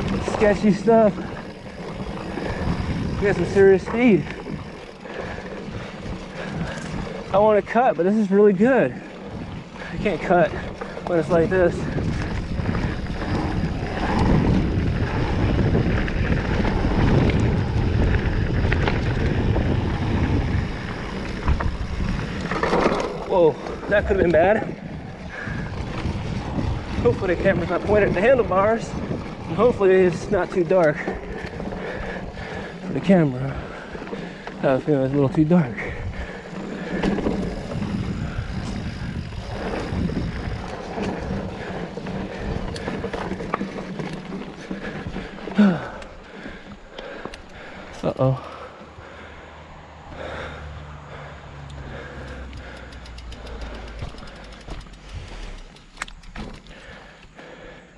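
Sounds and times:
wind buffeting microphone: 0.0 - 57.6
bike clicks and rattles: 0.0 - 57.9
tyres rumbling on dirt: 0.0 - 57.9.

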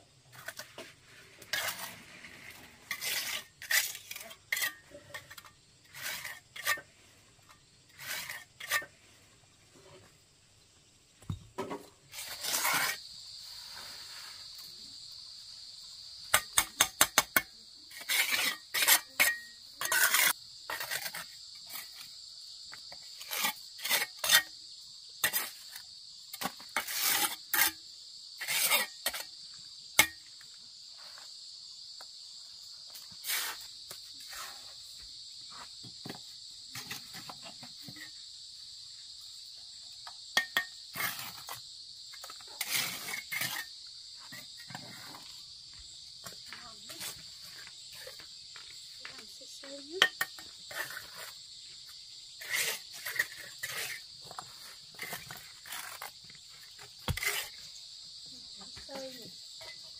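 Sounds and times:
trowel scraping on bricks: 0.3 - 6.9, 7.9 - 9.0, 11.8 - 13.0, 16.3 - 22.0, 23.0 - 24.5, 26.4 - 27.8, 28.4 - 29.3, 42.2 - 43.7, 50.0 - 51.4, 52.4 - 57.7
high insect drone: 1.5 - 59.9.

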